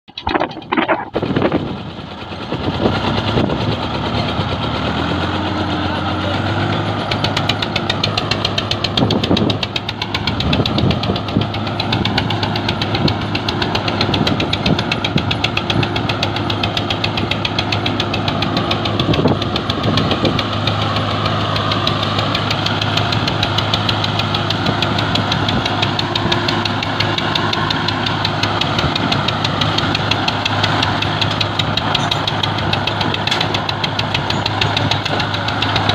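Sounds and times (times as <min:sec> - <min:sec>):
tractor diesel engine running: 0:00.0 - 0:35.9.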